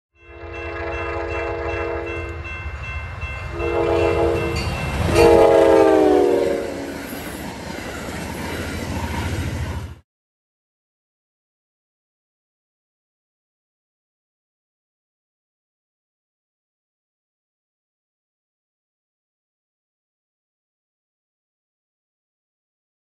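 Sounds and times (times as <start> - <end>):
train horn blasts: 0.2 - 2.5, 3.5 - 7.0
train rumbling on rails: 0.2 - 10.0.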